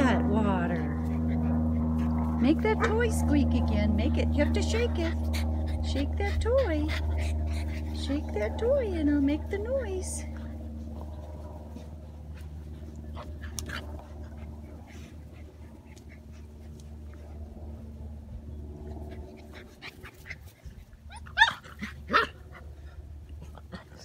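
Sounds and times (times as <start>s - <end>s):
low hum: 0.0s - 24.0s
puppy yips: 21.1s - 22.3s.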